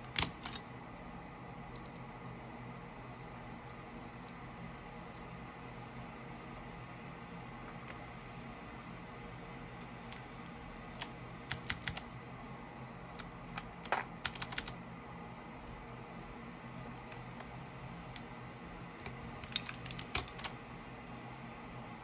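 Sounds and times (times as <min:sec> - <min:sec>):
mechanical keyboard keys clacking: 0:00.0 - 0:00.7, 0:11.0 - 0:12.1, 0:13.1 - 0:14.8, 0:19.1 - 0:20.6.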